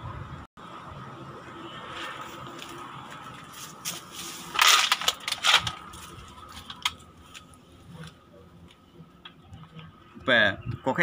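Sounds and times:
leaves and twigs crunching underfoot: 0:01.8 - 0:08.2.

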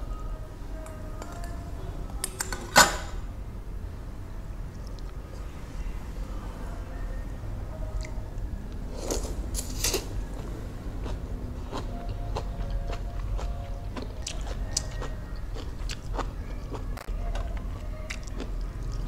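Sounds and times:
chewing with wet smacks: 0:10.3 - 0:19.0.

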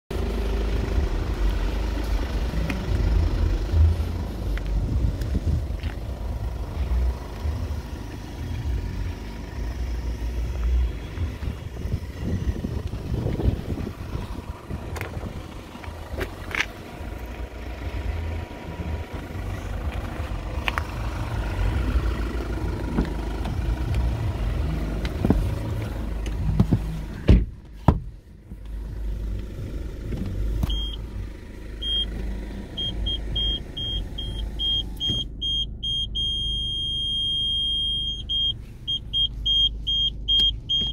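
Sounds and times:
low steady rumble: 0:00.1 - 0:40.9
car door shutting: 0:25.0 - 0:28.2, 0:34.6 - 0:35.3, 0:40.3 - 0:40.9
parking sensor beeping: 0:30.6 - 0:31.1, 0:31.8 - 0:40.9.

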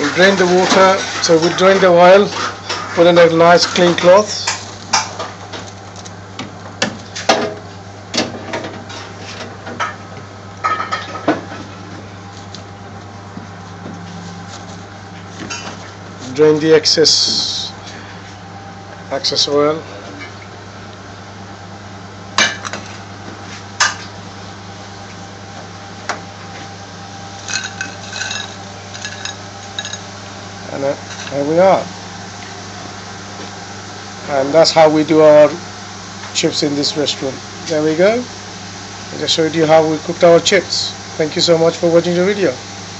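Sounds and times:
wire fryer basket clattering: 0:00.0 - 0:05.7, 0:27.4 - 0:30.1
steady low hum: 0:00.0 - 0:42.9
chips clinking onto plate: 0:27.5 - 0:30.0.

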